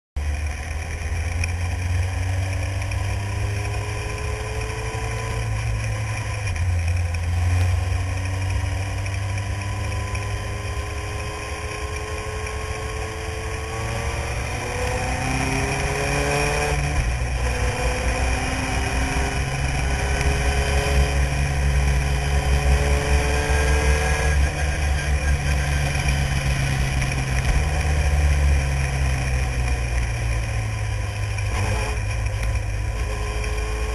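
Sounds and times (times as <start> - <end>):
racing car engine accelerating: 7.4 - 33.9
heavy low rumble: 13.7 - 33.9.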